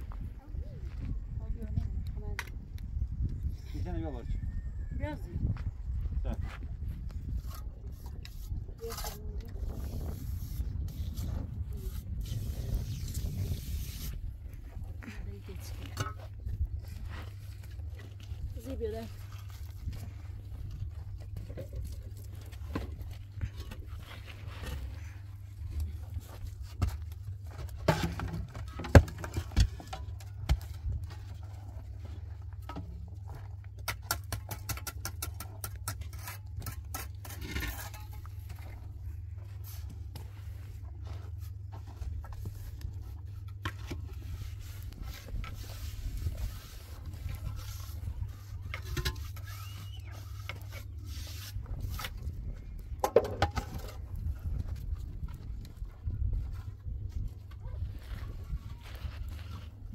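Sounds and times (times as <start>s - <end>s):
concrete blocks knocking and scraping: 15.4s - 40.4s, 41.3s - 56.7s.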